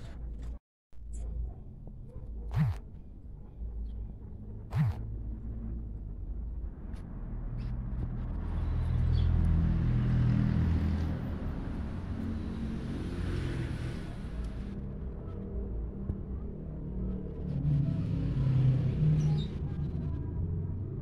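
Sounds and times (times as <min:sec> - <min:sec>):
vehicle passing engine rumble: 0:04.3 - 0:16.0.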